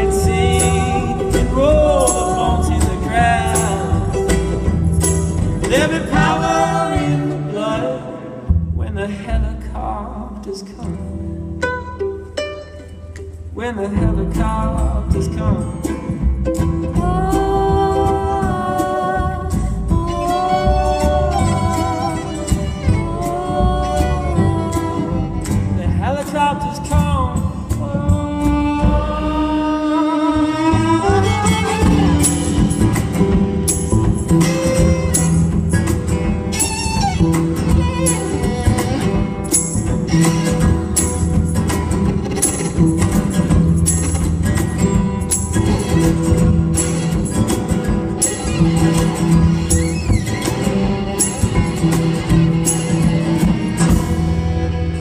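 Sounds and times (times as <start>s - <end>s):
person singing: 0.0s - 4.5s, 5.6s - 11.1s, 16.8s - 32.6s
percussion hits: 0.0s - 7.4s, 31.2s - 55.0s
drums: 0.0s - 11.0s, 13.2s - 55.0s
acoustic band music: 0.0s - 55.0s
strings: 0.0s - 55.0s
upright bass: 0.0s - 55.0s.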